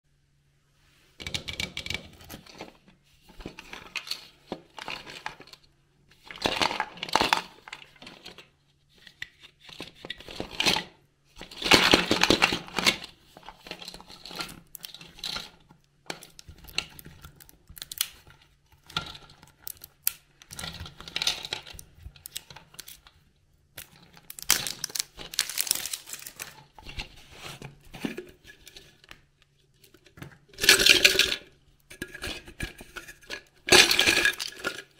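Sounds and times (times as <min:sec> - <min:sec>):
plastic wrapping crinkling and tearing: 0:23.8 - 0:27.5.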